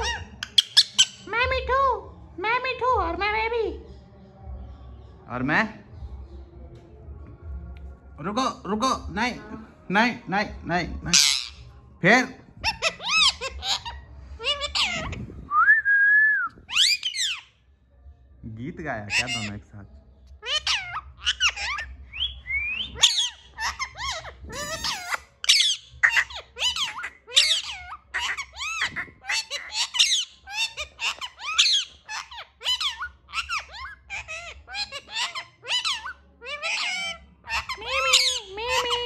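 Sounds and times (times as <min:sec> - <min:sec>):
parakeets chattering: 0:00.0 - 0:01.8, 0:11.0 - 0:15.3, 0:16.7 - 0:17.5, 0:18.8 - 0:39.0.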